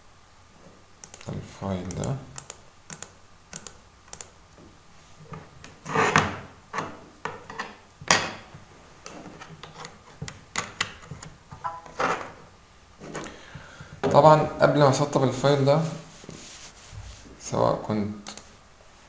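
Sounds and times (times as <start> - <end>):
computer mouse clicks: 1.0 - 4.4, 18.2 - 18.5.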